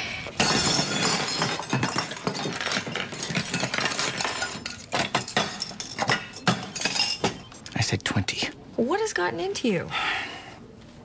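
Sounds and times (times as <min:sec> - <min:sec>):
dishes clattering on metal tray: 0:00.4 - 0:07.5
sharp glass clinks: 0:03.3 - 0:07.5.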